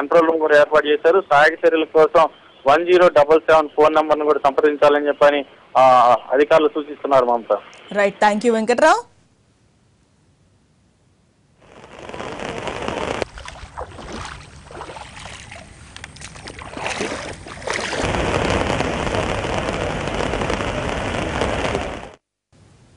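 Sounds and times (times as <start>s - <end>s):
rushing floodwater: 13.2s - 18.3s.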